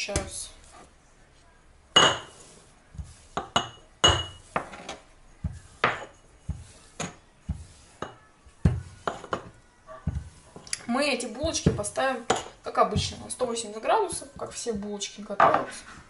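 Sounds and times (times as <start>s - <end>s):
dishes and utensils clinking: 1.9s - 13.4s.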